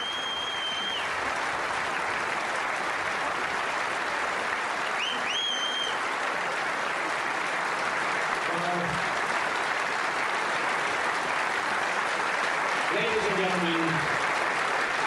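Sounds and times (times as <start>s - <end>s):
high whistles from crowd: 0.0s - 1.2s, 4.8s - 6.0s
audience applauding: 0.0s - 15.0s.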